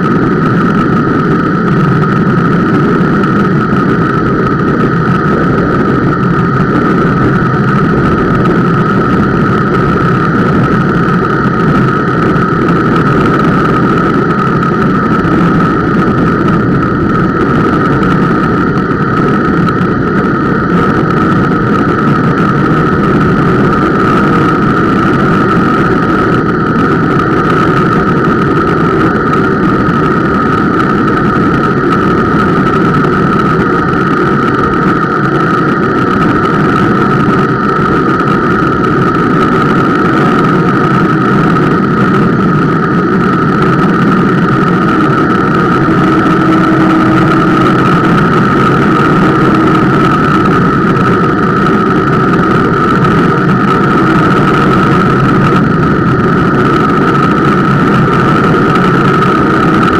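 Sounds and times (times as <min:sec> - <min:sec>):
brake pads rushing on rotor: 0:00.0 - 0:59.9.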